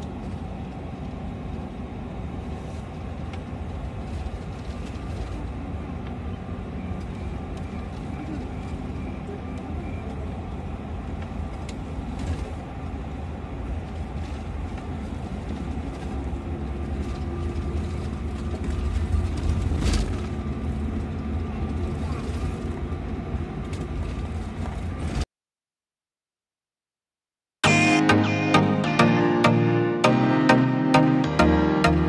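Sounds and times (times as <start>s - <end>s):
bus engine and road rumble: 0.0s - 25.3s.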